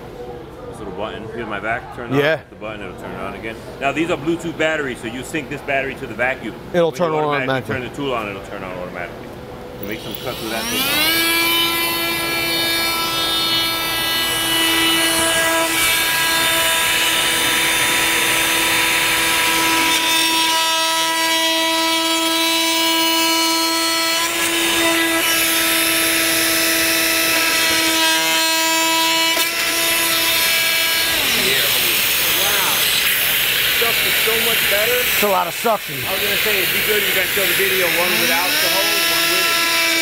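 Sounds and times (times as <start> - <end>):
oscillating multi-tool whine: 9.8 - 35.4, 36.0 - 40.0
dust extractor drawing air: 29.6 - 39.7.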